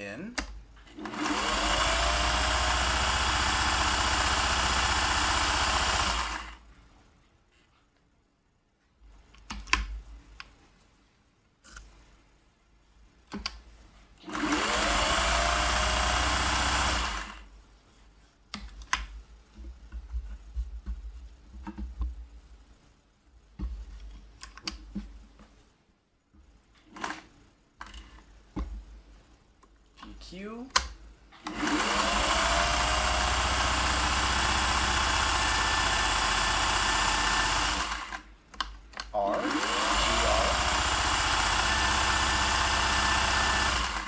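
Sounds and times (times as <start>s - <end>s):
sewing machine motor whining: 1.0s - 6.6s, 14.2s - 17.4s, 31.5s - 38.2s, 39.2s - 44.0s.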